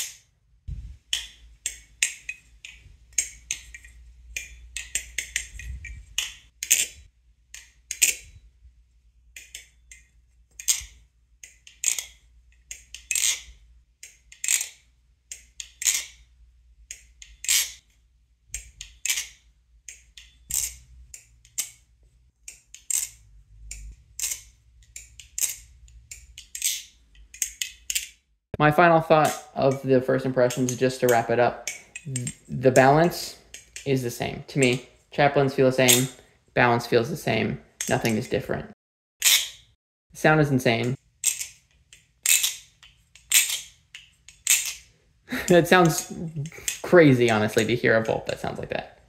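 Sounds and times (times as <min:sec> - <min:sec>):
butterfly knife handles clacking: 0:01.1 - 0:08.3, 0:09.4 - 0:16.3, 0:18.5 - 0:21.8, 0:22.5 - 0:28.2, 0:30.5 - 0:34.0, 0:35.8 - 0:36.2, 0:40.7 - 0:47.8.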